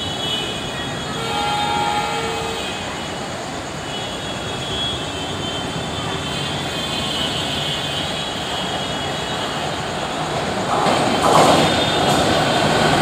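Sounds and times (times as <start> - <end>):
jet airliner roaring overhead: 0.0 - 3.8
train rumbling: 0.0 - 13.0.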